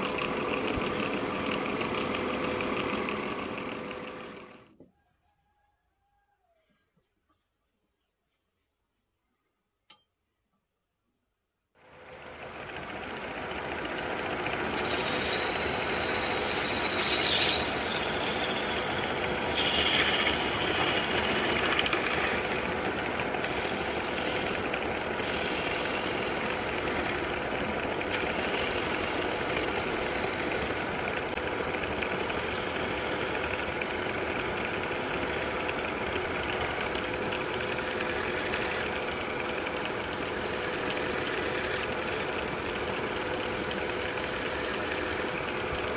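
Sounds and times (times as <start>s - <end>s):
wood lathe motor humming: 0.0s - 4.8s, 11.9s - 45.9s
turning tool scraping wood: 14.8s - 30.9s, 31.8s - 45.7s.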